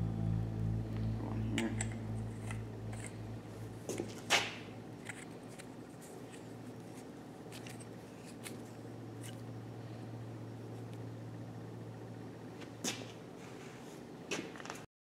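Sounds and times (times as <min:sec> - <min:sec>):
pipe fittings clicking and scraping: 0:05.0 - 0:09.4.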